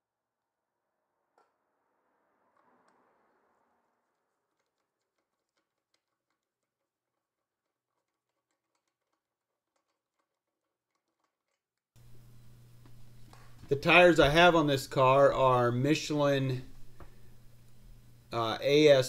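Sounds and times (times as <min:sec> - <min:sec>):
low steady hum: 0:12.0 - 0:19.0.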